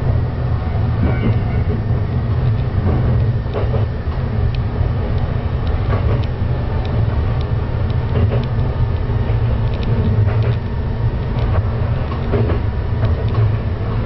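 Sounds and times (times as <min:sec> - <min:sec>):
railcar engine and wheel rumble: 0:00.0 - 0:14.0
track clicks and knocks: 0:00.8 - 0:14.0.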